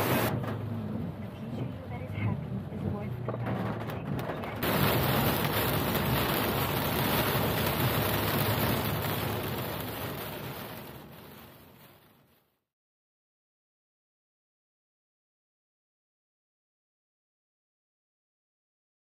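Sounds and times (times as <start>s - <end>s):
rushing water: 0.0s - 0.3s, 4.6s - 11.1s.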